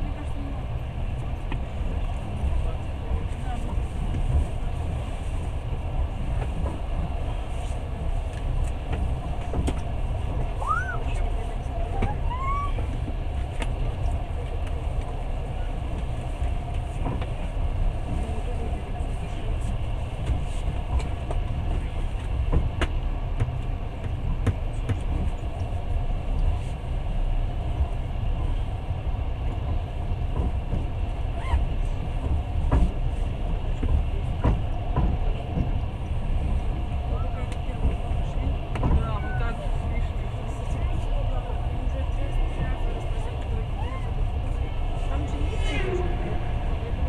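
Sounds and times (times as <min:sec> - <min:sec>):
train rumbling along track: 0:00.0 - 0:47.0
train wheels clicking and knocking: 0:32.2 - 0:35.8, 0:37.4 - 0:39.4.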